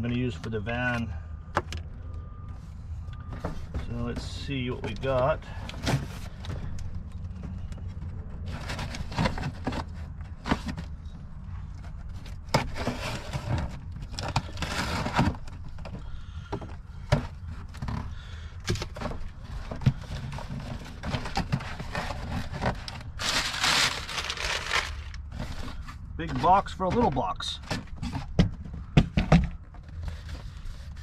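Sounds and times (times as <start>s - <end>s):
cardboard box scrapes and knocks: 12.4s - 15.8s, 18.9s - 26.6s
paper packing rustling: 17.1s - 28.3s.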